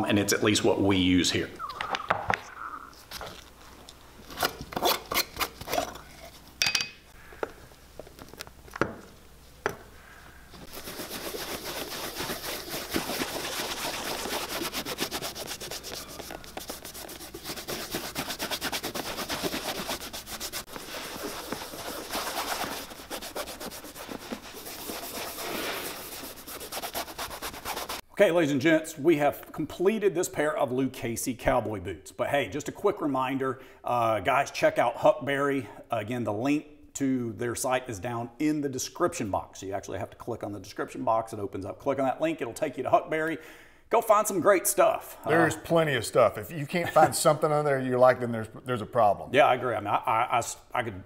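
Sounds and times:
cloth rubbing on leather: 0:10.6 - 0:28.0.

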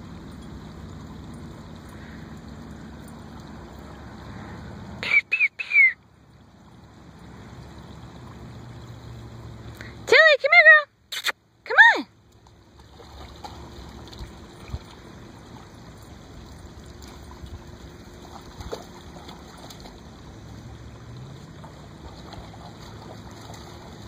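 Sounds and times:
water sloshing and splashing: 0:06.3 - 0:09.9, 0:12.1 - 0:24.0.

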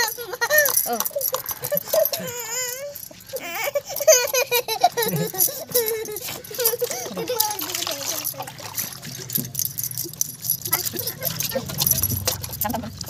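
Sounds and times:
child vocalizing: 0:00.0 - 0:08.6, 0:10.7 - 0:12.0.

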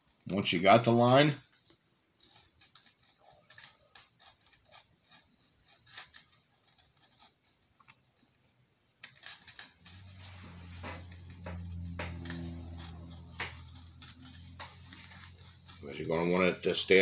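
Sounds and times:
pencil scratching: 0:02.2 - 0:07.6, 0:09.0 - 0:17.0.

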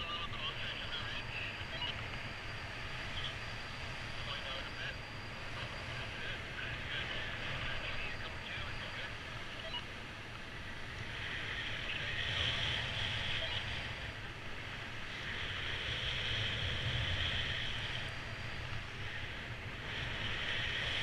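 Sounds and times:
wind rushing over microphone: 0:10.6 - 0:21.0.

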